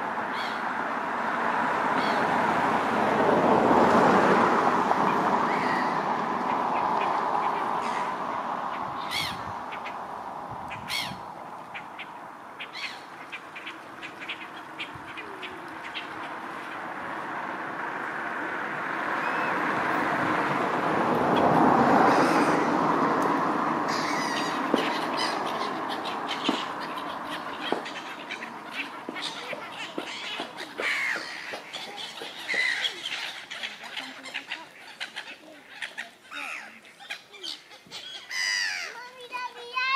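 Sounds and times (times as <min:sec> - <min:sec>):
harsh bird calls: 0:00.3 - 0:00.7, 0:04.9 - 0:17.5, 0:21.2 - 0:23.0, 0:23.6 - 0:39.9.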